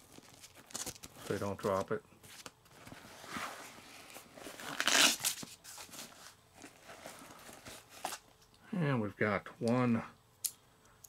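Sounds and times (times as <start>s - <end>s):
plastic packaging crinkling: 0.0s - 2.5s.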